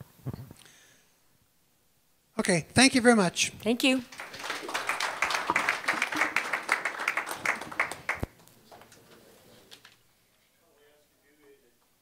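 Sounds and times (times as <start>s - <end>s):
audience applauding: 4.0s - 9.2s.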